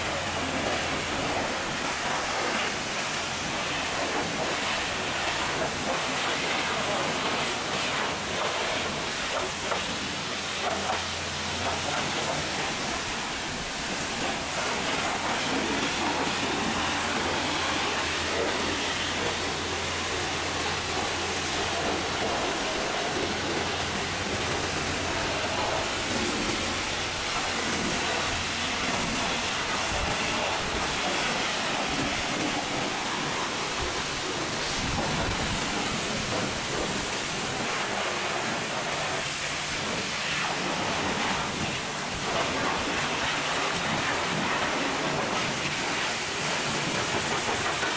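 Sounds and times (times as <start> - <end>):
pressure washer spray hissing: 0.0 - 47.9.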